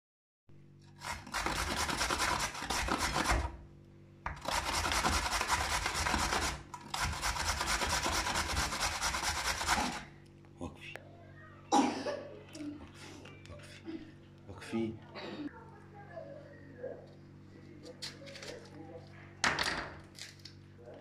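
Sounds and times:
carrot grating on metal grater: 0.8 - 3.6, 4.3 - 10.1.

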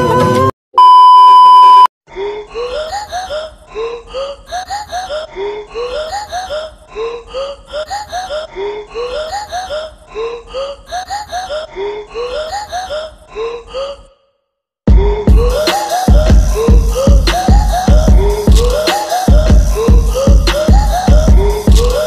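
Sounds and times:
test pattern beep: 0.8 - 1.9
music with looping vocal sample: 14.9 - 22.0.

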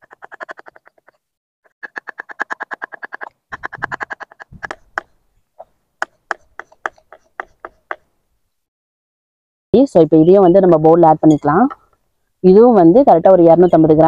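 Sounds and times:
frog calling: 0.0 - 1.2, 1.8 - 8.1
knife chopping on wooden board: 6.0 - 8.0.

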